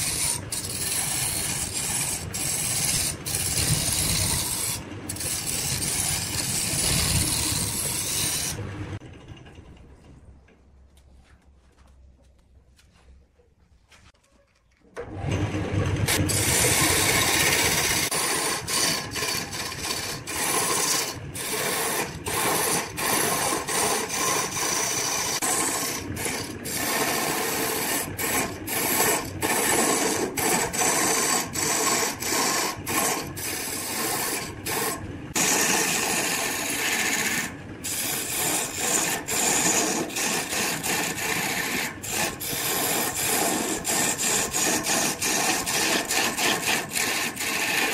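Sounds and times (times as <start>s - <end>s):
wood lathe tool shaving wood: 0.0s - 9.0s, 15.0s - 47.9s.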